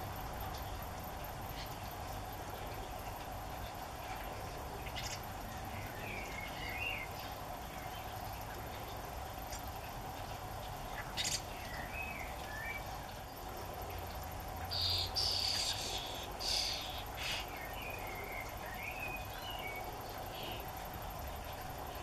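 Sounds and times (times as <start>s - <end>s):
nestlings begging with hissing calls: 14.7s - 17.6s.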